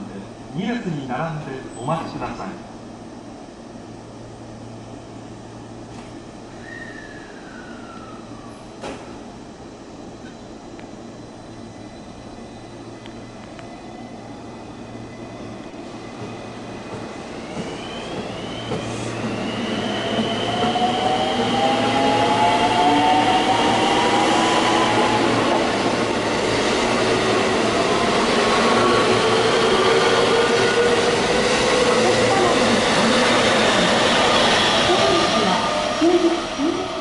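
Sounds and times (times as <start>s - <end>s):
high whining train tones: 0.0s - 37.0s
electric train running noise: 10.7s - 37.0s.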